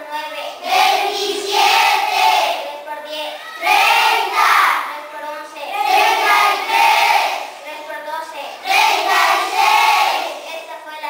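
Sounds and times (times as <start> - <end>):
children chanting in unison: 0.3 - 4.9, 5.7 - 7.6, 8.4 - 10.5.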